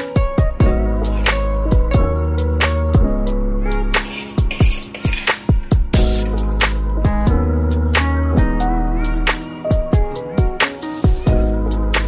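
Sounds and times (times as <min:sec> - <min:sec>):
kick drum thumps: 0:01.7 - 0:02.1, 0:05.5 - 0:06.2, 0:07.0 - 0:07.5.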